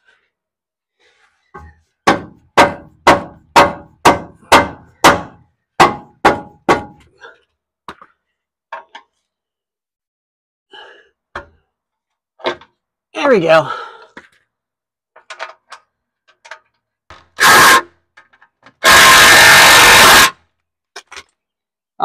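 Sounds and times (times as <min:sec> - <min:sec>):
hammer striking metal: 0:02.1 - 0:07.0.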